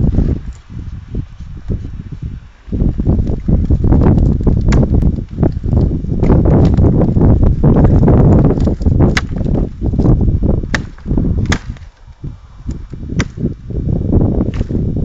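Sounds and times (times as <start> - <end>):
wind rumbling on microphone: 0.0 - 15.0
axe chopping wood: 4.4 - 5.2, 5.8 - 6.9, 7.9 - 12.0, 13.1 - 13.6, 14.5 - 14.8.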